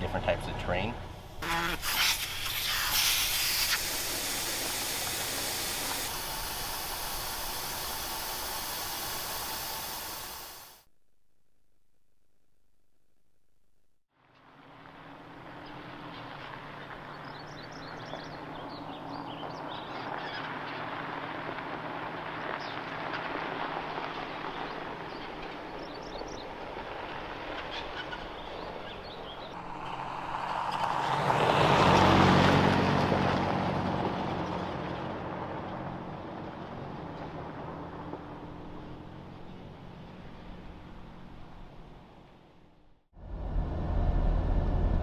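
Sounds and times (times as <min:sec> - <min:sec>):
tyres crunching on gravel: 0:19.2 - 0:38.8.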